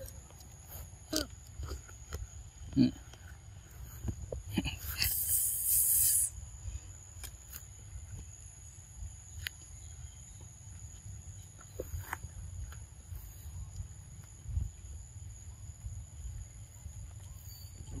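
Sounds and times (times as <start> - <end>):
insects droning: 0.0 - 18.0
loud hissing rustle: 3.7 - 7.7.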